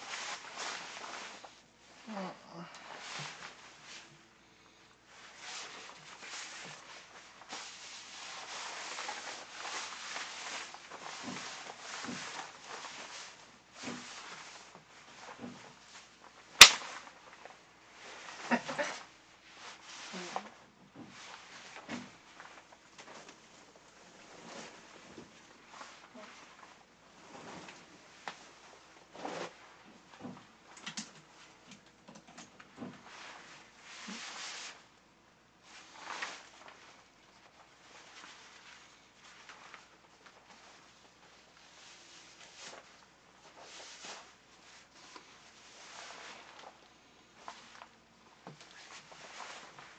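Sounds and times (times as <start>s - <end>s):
pvc clothing rustling: 0.0s - 4.4s, 5.1s - 49.9s
sharp snap: 16.6s - 17.0s.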